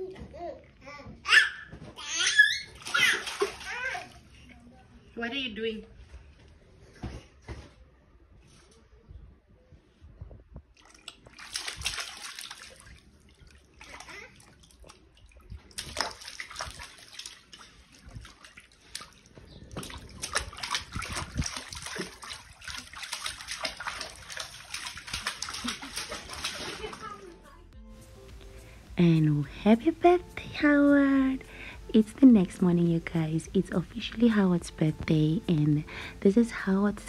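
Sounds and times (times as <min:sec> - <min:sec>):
water sloshing and splashing: 0:02.4 - 0:04.7, 0:10.6 - 0:27.4.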